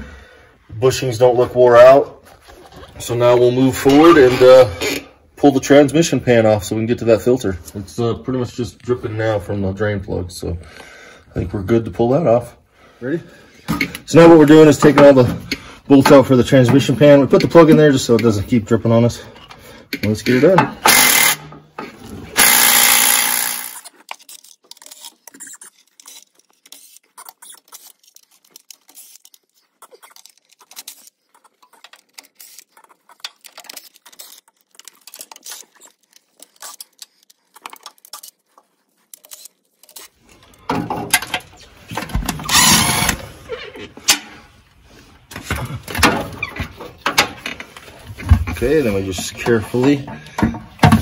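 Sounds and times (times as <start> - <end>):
ratchet clicking: 20.9 - 21.4, 22.4 - 29.4
small power tool bursts: 20.9 - 21.5, 22.4 - 23.9, 42.5 - 43.2.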